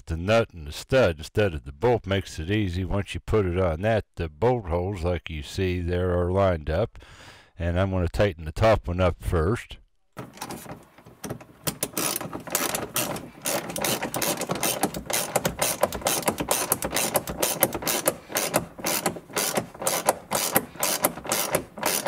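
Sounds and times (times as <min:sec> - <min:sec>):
hand ratchet clicking: 0:10.2 - 0:22.0.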